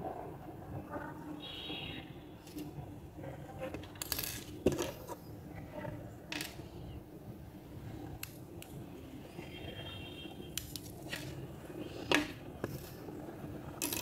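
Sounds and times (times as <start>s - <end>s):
small objects clicking on tabletop: 10.6s - 11.4s, 13.8s - 14.0s.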